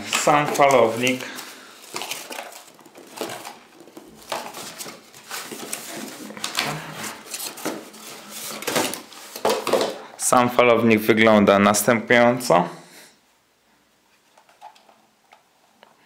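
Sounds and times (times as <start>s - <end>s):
cardboard rustling and scraping: 0.0s - 10.0s.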